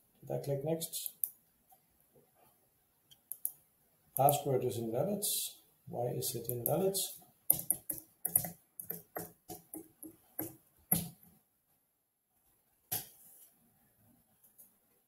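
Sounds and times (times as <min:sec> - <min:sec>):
computer keyboard typing: 0:07.5 - 0:11.2.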